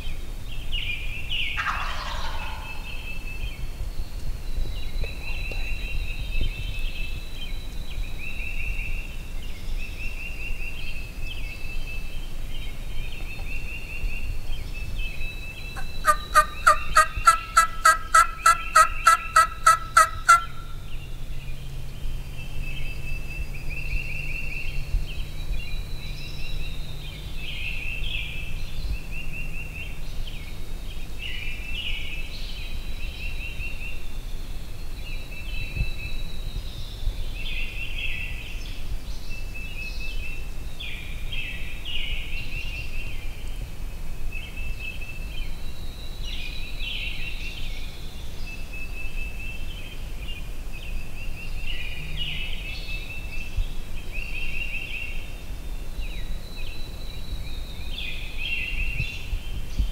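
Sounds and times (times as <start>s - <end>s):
songbirds singing: 0.0s - 59.9s
turkey yelps: 1.6s - 2.8s, 15.8s - 20.7s.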